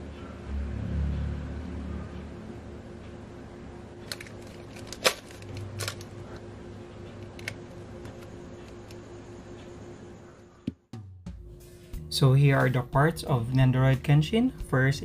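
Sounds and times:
plastic figure parts clicking: 4.1s - 6.1s.

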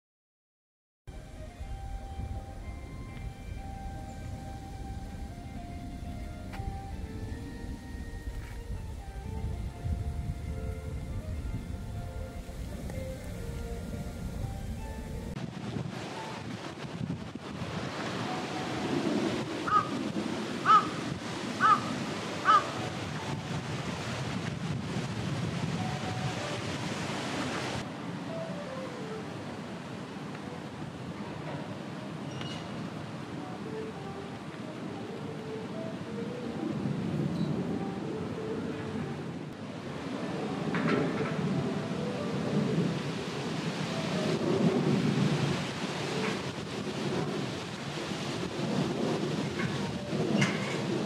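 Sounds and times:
wind: 1.1s - 51.0s
rain: 11.8s - 51.0s
crow cawing: 19.7s - 20.0s, 20.6s - 21.0s, 21.6s - 22.8s
rain hissing: 41.5s - 51.0s.

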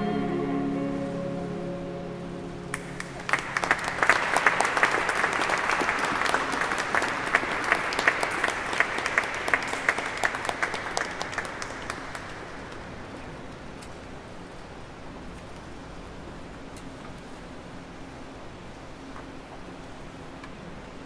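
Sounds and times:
held chord of chamber music: 0.0s - 3.6s
audience applause: 2.7s - 12.9s.

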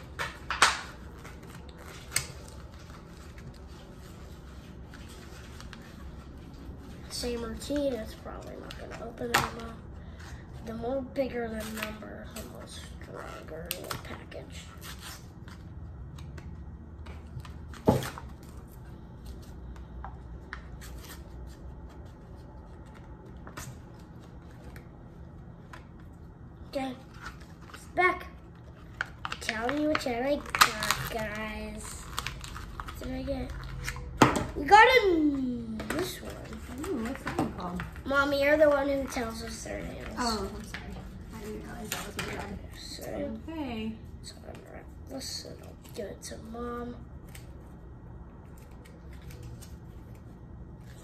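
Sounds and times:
low steady hum: 0.0s - 51.0s
plastic package crinkling: 28.8s - 34.2s.

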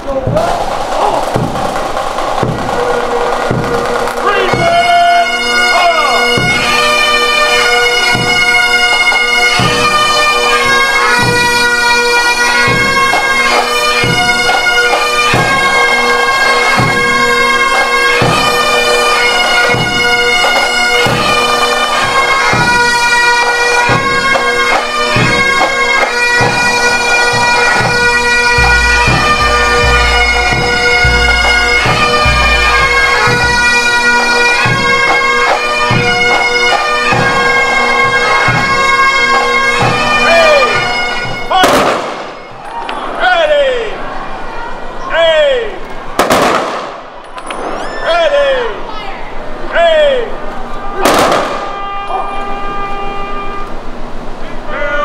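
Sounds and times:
drum beat: 0.0s - 7.0s, 8.0s - 8.9s, 9.5s - 18.6s, 23.8s - 42.4s
bagpipes playing slow tune: 2.6s - 41.5s, 51.6s - 54.0s.

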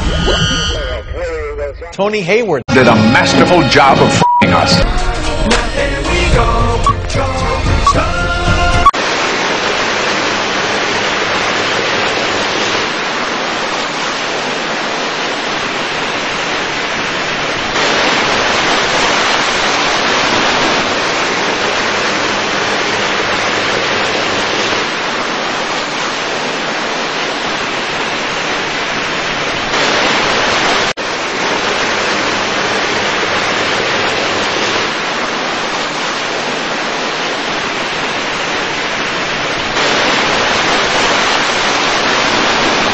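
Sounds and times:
steady rushing noise: 8.9s - 42.9s.

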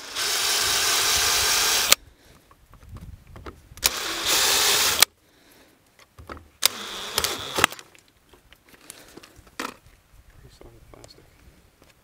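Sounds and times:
cordless drill boring through plastic: 0.0s - 2.0s, 3.8s - 5.1s, 6.6s - 7.8s.

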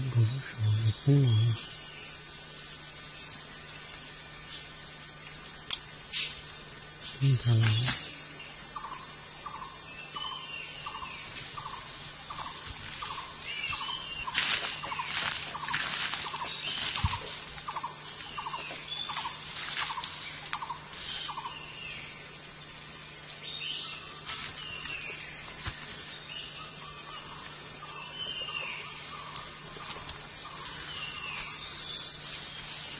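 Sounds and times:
bird chirps: 0.0s - 2.2s, 7.0s - 22.2s, 23.2s - 32.9s
high insect whine: 0.0s - 32.9s
dry leaves crackling underfoot: 10.9s - 27.5s, 28.5s - 32.9s.

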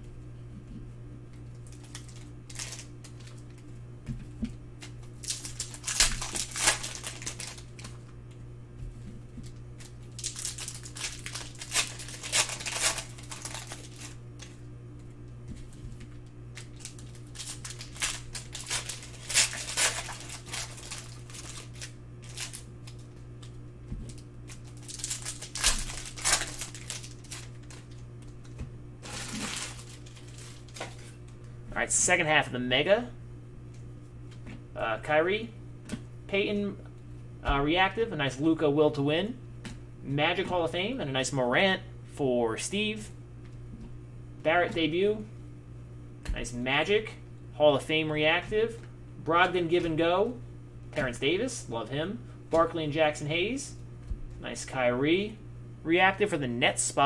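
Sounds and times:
foil wrapper crinkling and tearing: 1.6s - 3.6s, 4.8s - 8.1s, 9.4s - 14.6s, 16.5s - 23.5s, 24.1s - 28.4s, 29.0s - 31.2s
cards rustling: 1.7s - 3.5s, 4.8s - 8.0s, 9.8s - 14.6s, 15.7s - 31.4s.

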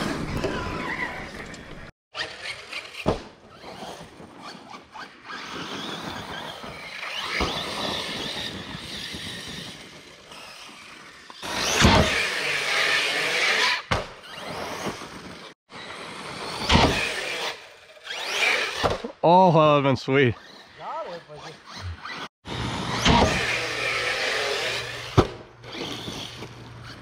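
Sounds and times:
tyres scrabbling on dirt: 25.6s - 27.0s.

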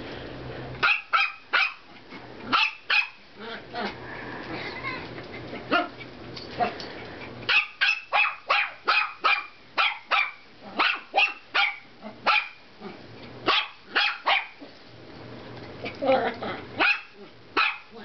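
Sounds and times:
puppy yapping: 0.8s - 1.9s, 2.5s - 3.2s, 7.5s - 12.6s, 13.5s - 14.6s, 16.8s - 18.0s.

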